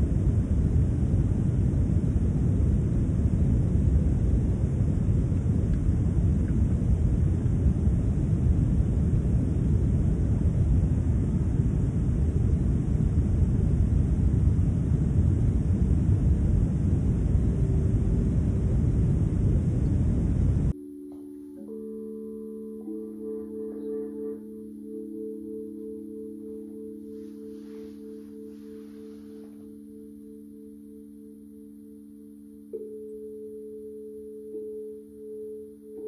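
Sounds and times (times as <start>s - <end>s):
loud low rumbling: 0.0s - 20.8s
faint steady tone: 0.0s - 36.0s.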